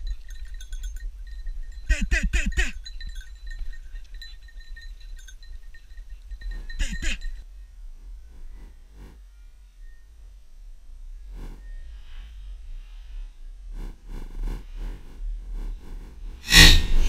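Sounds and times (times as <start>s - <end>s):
dog bell jingling: 0.0s - 7.5s.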